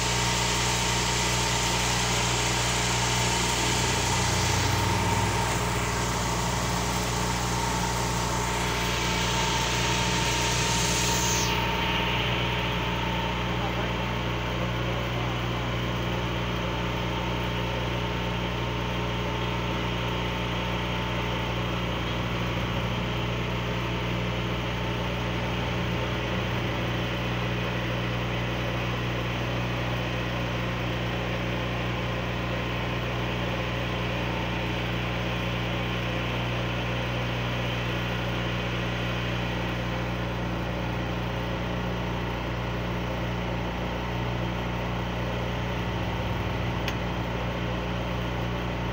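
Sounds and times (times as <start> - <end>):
engine idling: 0.0 - 48.9.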